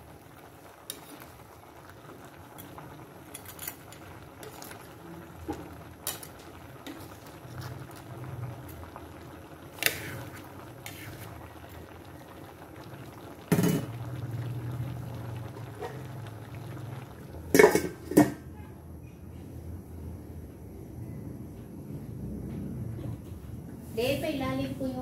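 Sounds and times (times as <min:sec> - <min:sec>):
pot simmering: 0:00.0 - 0:18.7.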